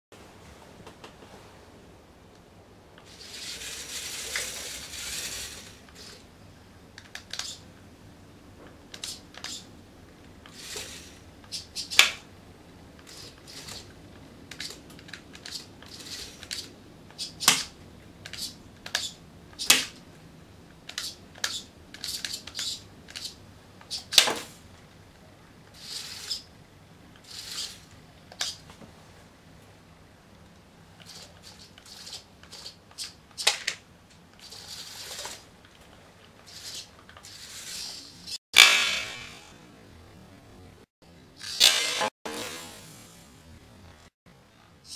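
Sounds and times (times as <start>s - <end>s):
motor whirring: 3.1s - 6.2s, 41.4s - 43.3s.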